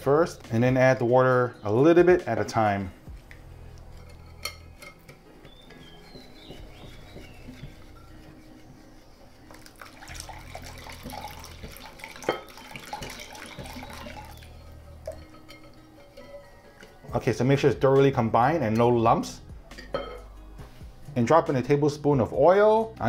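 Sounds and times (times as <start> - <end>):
whisk clicking on glass bowl: 4.1 - 8.3, 9.5 - 16.3
whisk mixing batter: 5.7 - 16.2
water pouring in thin stream: 9.5 - 14.6.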